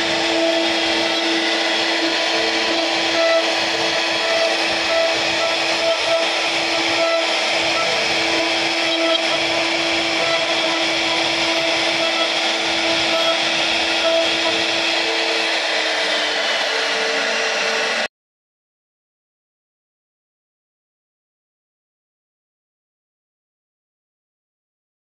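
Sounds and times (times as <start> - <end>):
router spindle cutting wood: 0.0 - 18.1.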